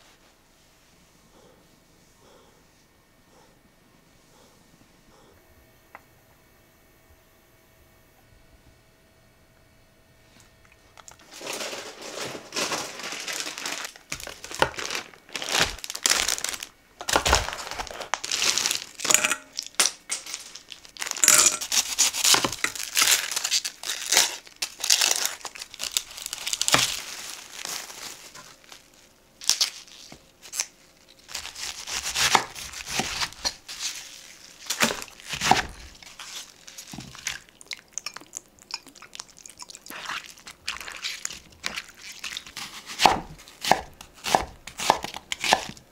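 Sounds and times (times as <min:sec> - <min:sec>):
packaging crinkling and tearing: 0:11.0 - 0:38.5, 0:40.0 - 0:45.8.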